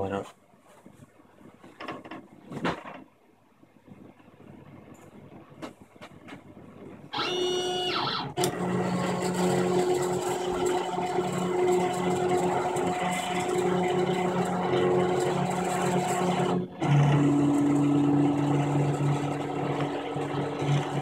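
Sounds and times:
laser cutter motors humming: 7.1 - 21.0.

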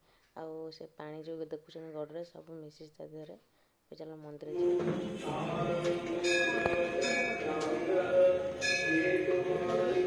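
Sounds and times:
temple bell ringing: 4.6 - 10.0.

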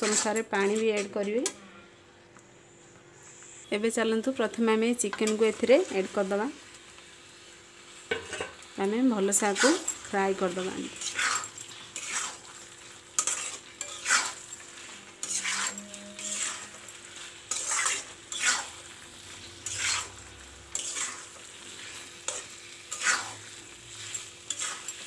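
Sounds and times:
frying sizzle: 0.0 - 1.0, 3.8 - 25.0
spatula scraping in a pan: 0.0 - 1.2, 9.2 - 25.0.

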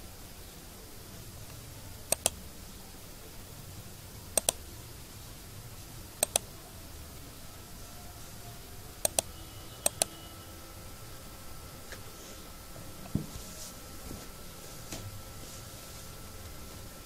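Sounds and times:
computer mouse button clicking: 2.1 - 2.4, 4.4 - 4.6, 6.2 - 6.4, 9.0 - 10.2.

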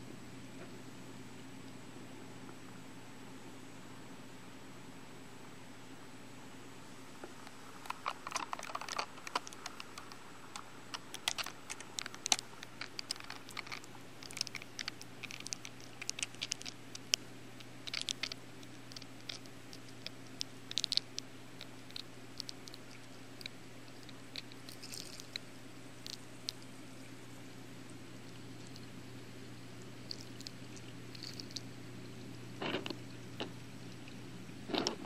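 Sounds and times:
steady low hum: 0.0 - 35.0
underwater clicking and crackling: 7.4 - 25.4.

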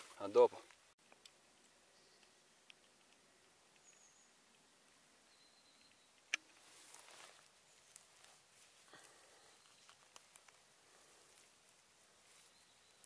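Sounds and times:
faint high chirps: 3.7 - 6.4, 9.0 - 10.1, 12.2 - 13.0
soft rustling: 6.5 - 13.0.

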